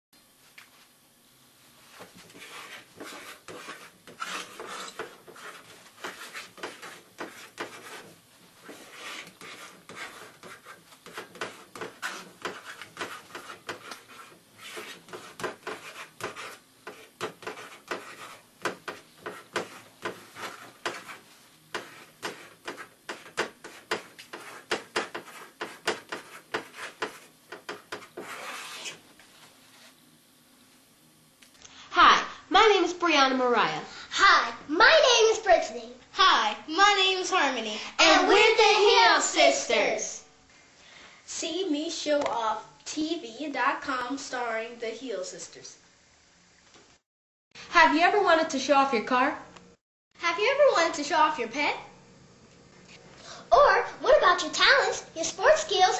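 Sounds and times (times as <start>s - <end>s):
chalk scratching on blackboard: 1.9s - 29.0s.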